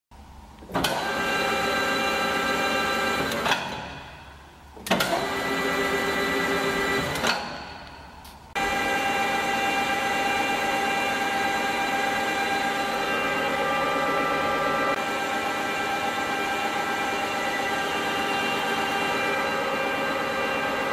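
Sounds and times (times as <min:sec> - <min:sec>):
lathe gear whine: 0:08.6 - 0:20.9.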